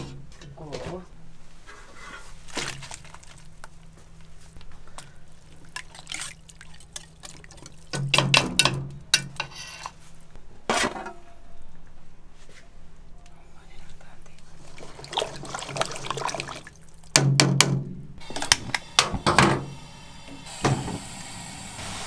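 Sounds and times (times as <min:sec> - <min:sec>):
liquid sloshing: 0:02.4 - 0:03.8, 0:05.2 - 0:08.2, 0:14.6 - 0:17.1.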